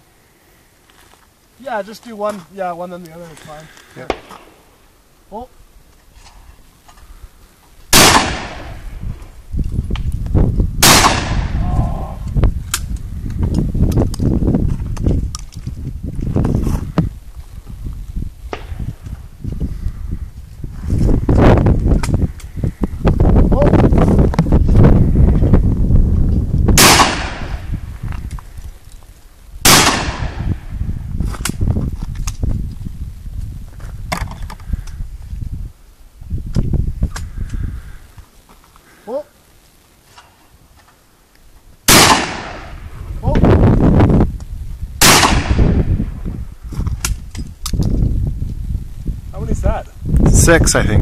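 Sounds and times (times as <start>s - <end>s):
shotgun shots with echo: 7.9s - 8.8s, 10.8s - 11.6s, 26.8s - 27.7s, 29.6s - 30.5s, 41.9s - 42.7s, 45.0s - 45.7s.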